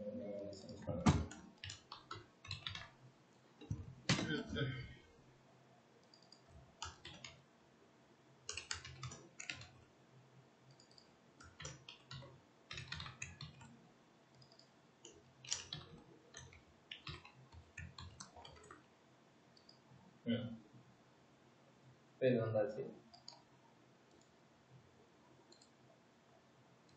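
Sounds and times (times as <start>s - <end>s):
faint keyboard typing: 0.5s - 4.9s, 6.0s - 7.5s, 8.4s - 9.9s, 10.6s - 18.9s, 19.5s - 20.0s, 23.0s - 24.4s, 25.3s - 26.0s.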